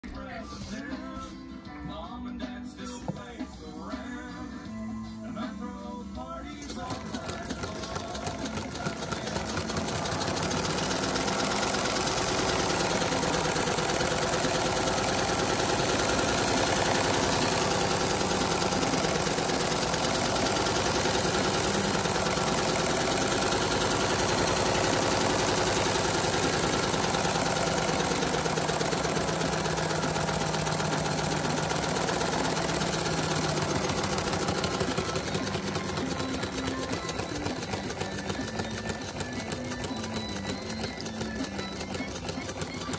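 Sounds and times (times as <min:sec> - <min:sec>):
toy pneumatic engine rattling: 0:06.6 - 0:42.9.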